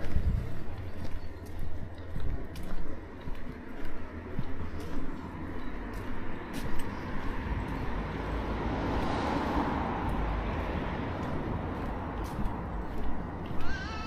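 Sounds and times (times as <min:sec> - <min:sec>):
car driving past: 0:04.8 - 0:14.0.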